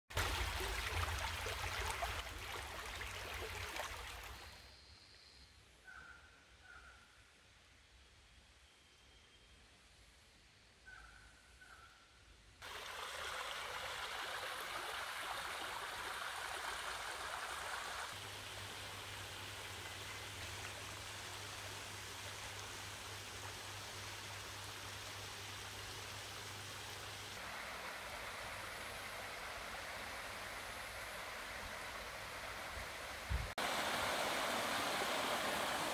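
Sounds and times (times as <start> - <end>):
flowing water rushing: 0.1 - 4.6, 12.6 - 35.9.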